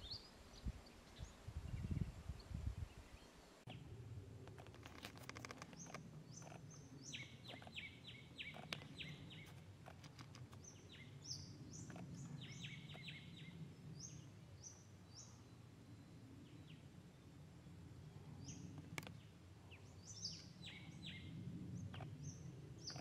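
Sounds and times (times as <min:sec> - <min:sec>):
birds calling: 0:03.0 - 0:15.6, 0:18.4 - 0:23.0
sharp clicks: 0:04.4 - 0:10.8.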